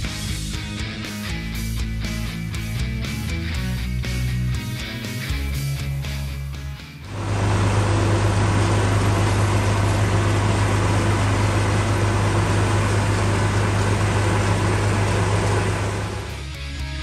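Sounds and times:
harvester rushing noise: 7.1s - 16.5s
tractor engine hum: 7.1s - 16.7s.

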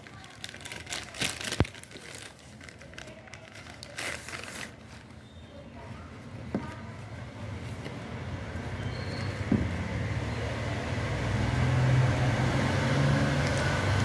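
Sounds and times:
plastic mailer crinkling: 0.0s - 5.9s.

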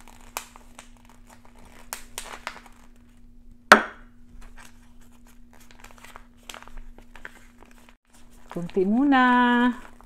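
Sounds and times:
plastic pouch crinkling: 0.0s - 3.2s, 4.6s - 10.0s
sharp knock: 3.7s - 4.0s.

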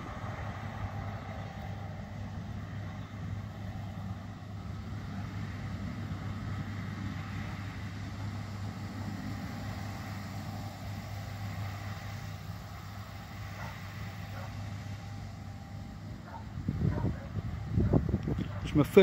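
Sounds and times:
distant combine harvester drone: 0.0s - 19.0s
tractor engine drone: 0.0s - 19.0s.

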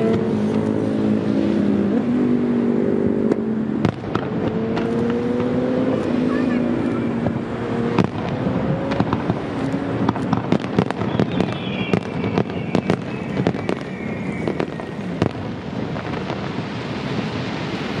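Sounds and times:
firework shells bursting: 7.9s - 17.2s.

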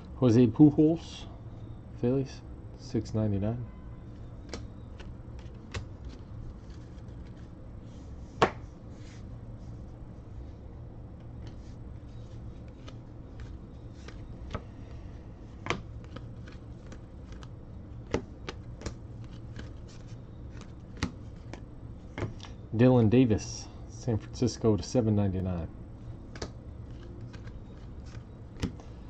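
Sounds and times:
cards being flipped by hand: 4.2s - 7.6s, 11.3s - 22.6s, 26.2s - 29.0s.

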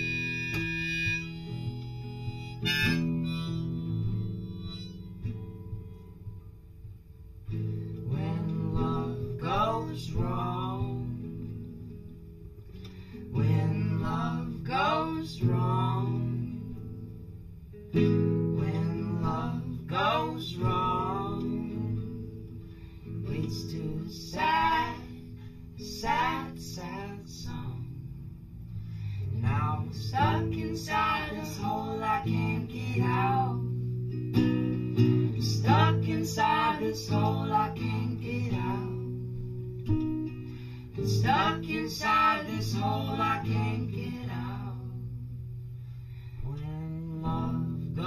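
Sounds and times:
wavering melody line: 0.0s - 5.6s
acoustic guitar strumming: 0.0s - 48.0s.

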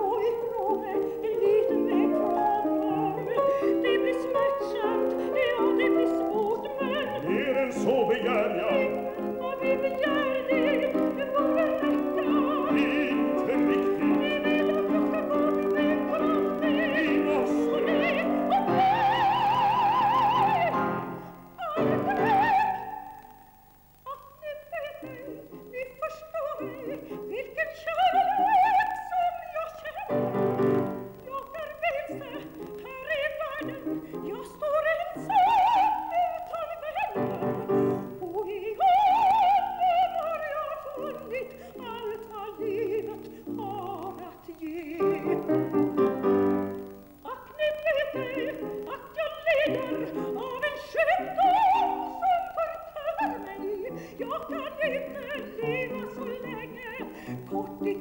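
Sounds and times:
piano chords: 0.0s - 23.2s, 30.1s - 31.5s, 39.2s - 47.3s
woman singing operatically: 0.0s - 58.0s.

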